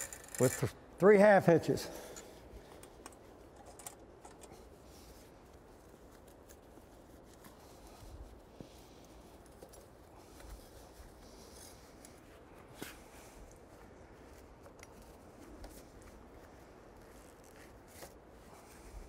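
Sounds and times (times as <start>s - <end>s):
rope rubbing and ticking: 0.0s - 0.8s, 2.3s - 19.0s.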